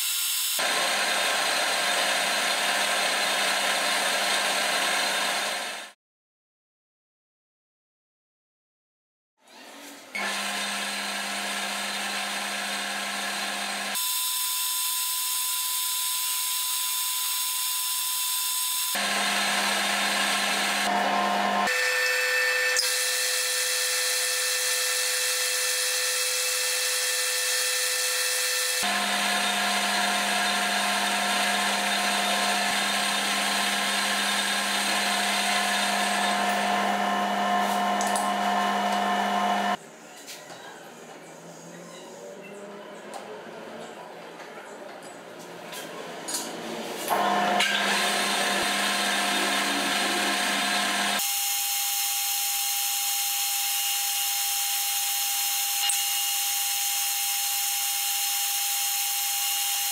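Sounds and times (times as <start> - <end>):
metal lathe motor whine: 10.2 - 39.8, 47.1 - 59.9.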